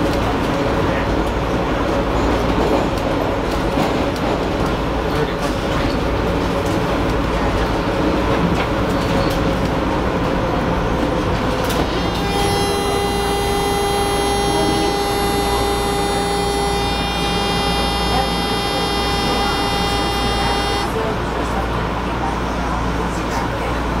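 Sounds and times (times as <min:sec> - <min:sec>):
subway car rumble and rail noise: 0:00.0 - 0:24.0
multi-tone whine: 0:11.8 - 0:21.0.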